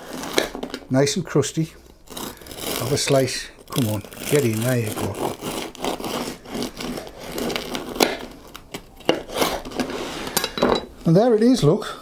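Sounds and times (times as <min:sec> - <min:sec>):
crust cracking: 0:02.0 - 0:09.9
bread knife sawing crusty bread: 0:02.1 - 0:03.2, 0:03.8 - 0:08.2.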